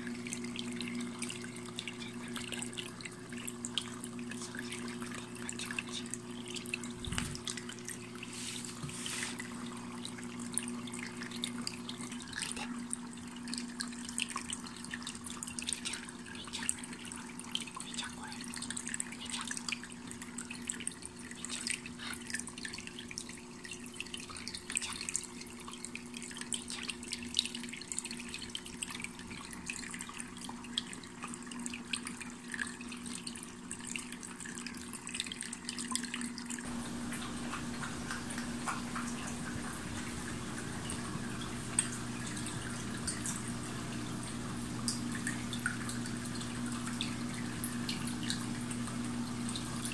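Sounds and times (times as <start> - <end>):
pump humming: 0.0 - 17.5, 36.6 - 49.9
water trickling and dripping: 0.0 - 49.9.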